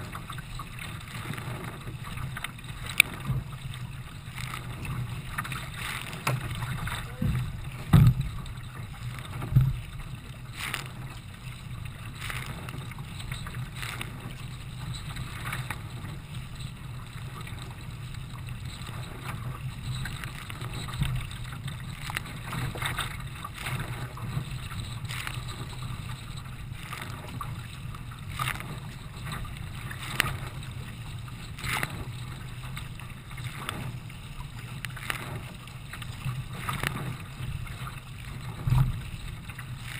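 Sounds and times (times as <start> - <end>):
water splashing against kayak: 0.0 - 39.9
wind rumble on microphone: 0.0 - 39.9.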